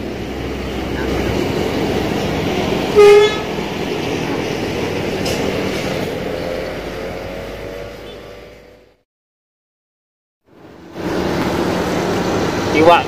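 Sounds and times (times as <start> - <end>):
outdoor background noise: 10.5 - 13.0.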